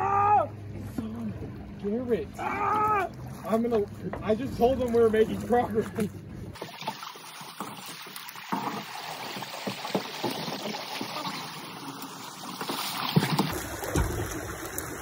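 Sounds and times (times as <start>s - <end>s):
creek water rushing and splashing: 0.8s - 15.0s
boat knocking on rocks: 13.1s - 15.0s.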